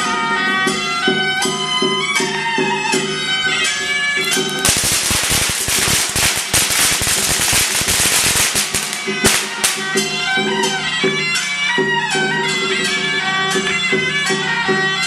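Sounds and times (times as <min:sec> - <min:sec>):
shawm reed-pipe music: 0:00.0 - 0:15.0
firecrackers popping: 0:04.2 - 0:10.4.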